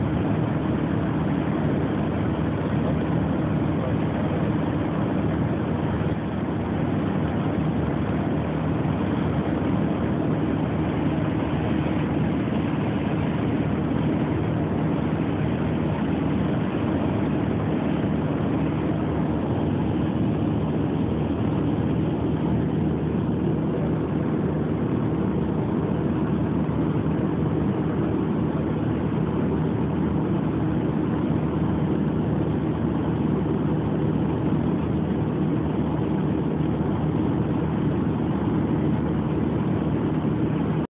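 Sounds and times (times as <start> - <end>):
light aircraft engine droning: 0.0 - 40.9.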